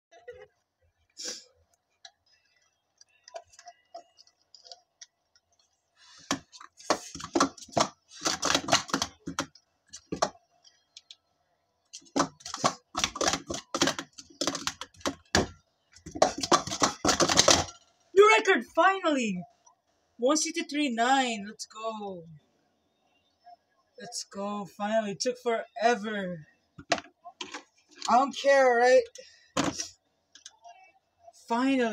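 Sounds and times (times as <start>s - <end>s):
plastic cups clattering: 6.2s - 10.4s, 12.0s - 17.8s.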